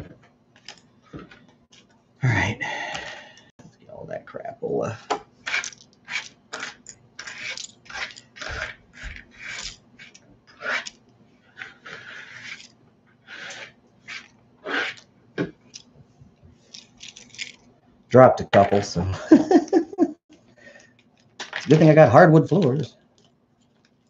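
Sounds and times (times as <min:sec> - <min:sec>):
cardboard counters scraping on table: 0:05.4 - 0:15.0.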